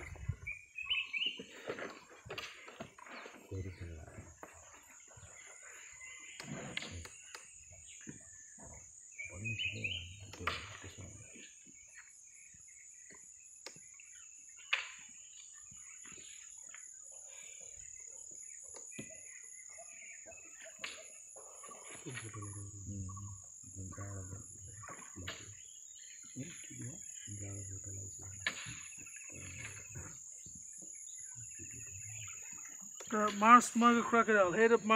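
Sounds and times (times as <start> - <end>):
birds chirping: 0.0 - 34.9
insect drone: 3.4 - 34.9
low voices murmuring: 26.4 - 28.4.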